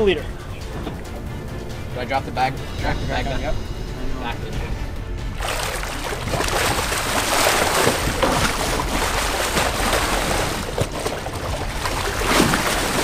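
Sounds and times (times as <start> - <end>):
water splashing and churning: 5.1 - 13.0.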